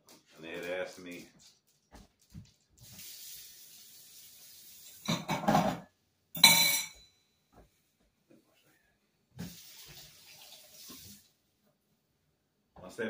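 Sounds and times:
running water: 0:02.4 - 0:05.3, 0:09.4 - 0:11.4
dishes clinking at sink: 0:05.0 - 0:07.2.

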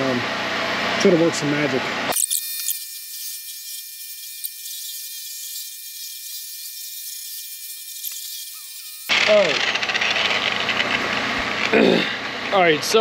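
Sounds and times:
electric polisher whining: 0:02.6 - 0:09.2.

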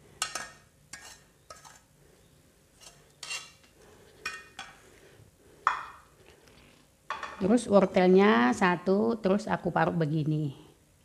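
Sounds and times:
wooden spatula scraping a wok: 0:00.2 - 0:01.9, 0:02.8 - 0:04.5.

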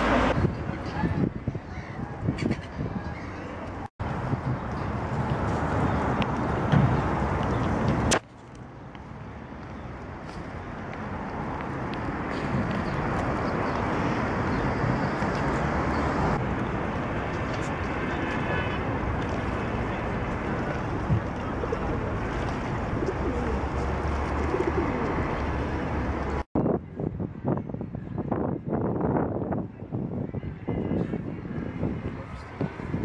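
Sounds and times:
rushing outdoor noise: 0:00.0 - 0:33.0
pigeon cooing: 0:23.0 - 0:25.3.

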